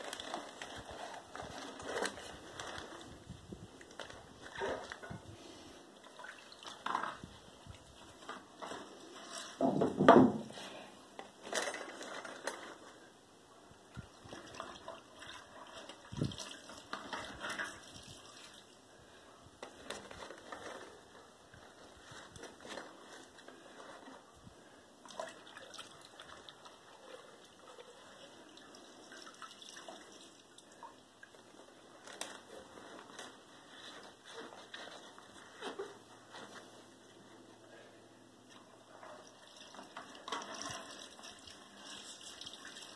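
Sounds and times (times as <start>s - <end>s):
wet newspaper crinkling: 0.0s - 5.0s.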